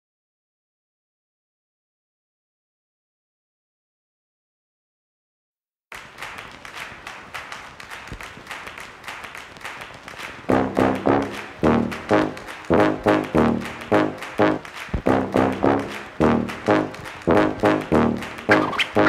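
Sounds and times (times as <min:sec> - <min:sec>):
intro music with rhythmic pulse: 0:10.5 - 0:19.0
loud brass stabs: 0:10.5 - 0:19.0.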